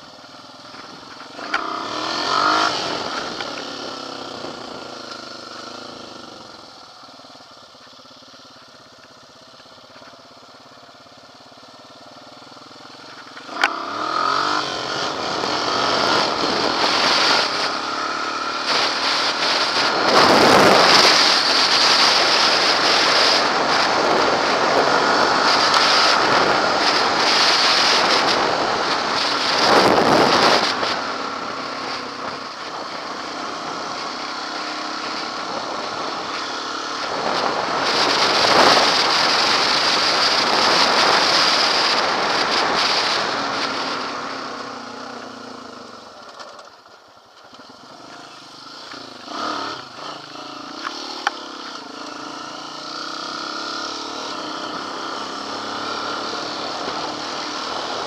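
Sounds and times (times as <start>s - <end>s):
atv engine revving: 0.0s - 58.0s
wind rushing over microphone: 14.2s - 34.1s, 37.0s - 44.6s.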